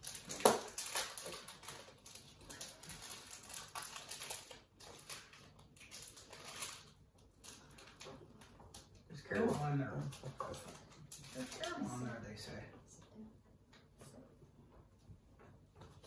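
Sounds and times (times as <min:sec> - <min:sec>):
wrappers crinkling: 0:00.0 - 0:11.9.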